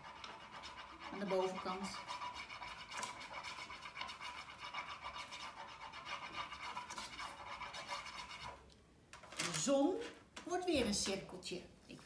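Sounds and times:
coloured pencil scratching on paper: 0.0 - 8.6.

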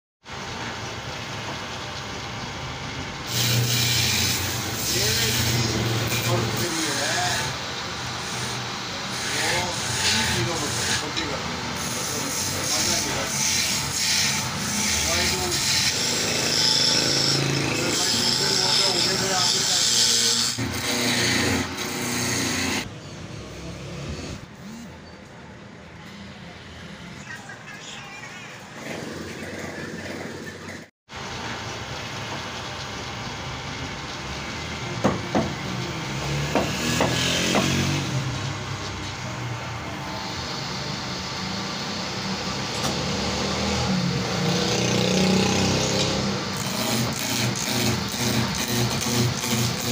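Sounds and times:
faint workshop noise: 0.3 - 49.9
wood lathe motor hum: 3.2 - 22.9, 34.2 - 49.9.

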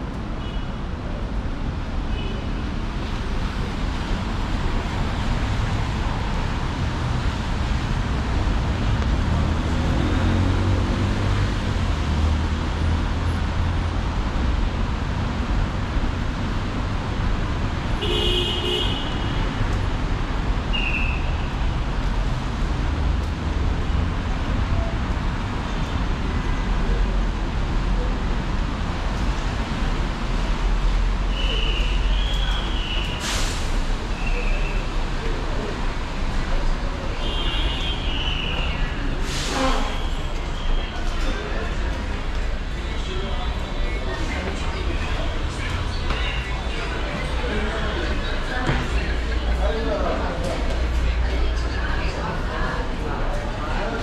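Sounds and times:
traffic rumble: 0.0 - 54.0
car horn toot: 18.0 - 19.3.

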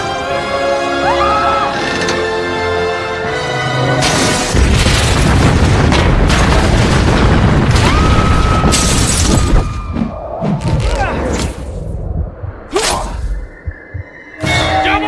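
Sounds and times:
music: 0.0 - 4.6, 13.9 - 15.0
loud rumbling crash: 4.1 - 9.8
glass shattering: 8.6 - 9.5.

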